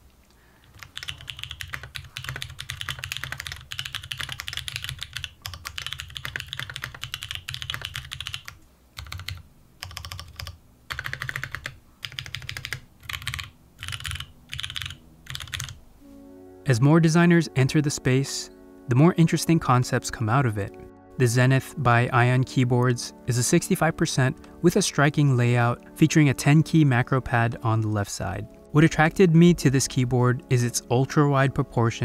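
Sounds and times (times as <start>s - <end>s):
typing on mechanical keyboard: 0.6s - 15.8s.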